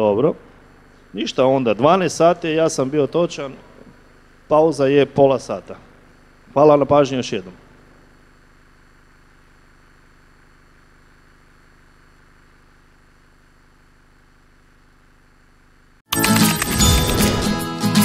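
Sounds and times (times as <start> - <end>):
faint electrical hum: 0.0 - 16.0
jingle music with chimes: 16.1 - 18.0.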